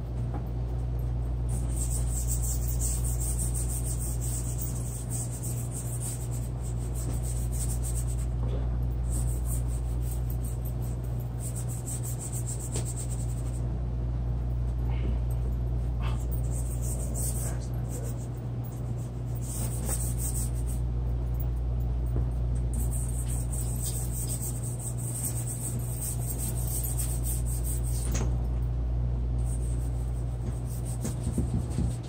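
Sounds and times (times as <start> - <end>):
steady low hum: 0.0 - 32.0
drawing tool scratching surface: 1.5 - 8.3, 9.1 - 13.6, 16.4 - 18.2, 18.8 - 20.8, 22.8 - 28.0.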